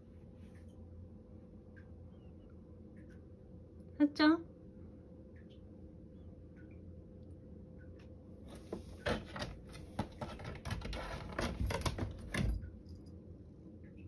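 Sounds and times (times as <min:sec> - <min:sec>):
paper rustling and crinkling: 0:08.5 - 0:12.4
cat claws scraping: 0:08.5 - 0:12.5.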